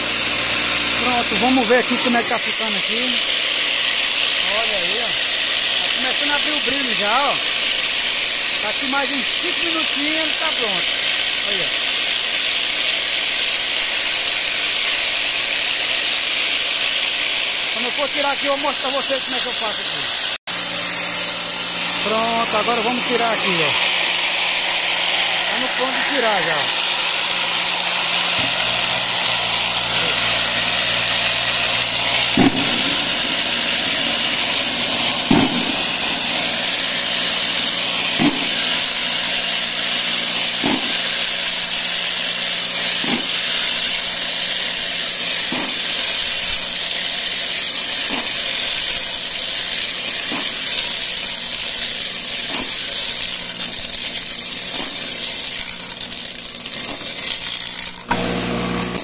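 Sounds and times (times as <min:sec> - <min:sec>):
tumbler rushing noise: 0:17.7 - 0:44.1.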